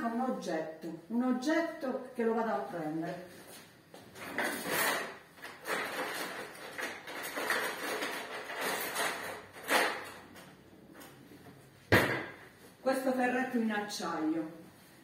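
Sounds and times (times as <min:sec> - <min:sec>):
rummaging rustles and knocks: 0:04.2 - 0:10.2.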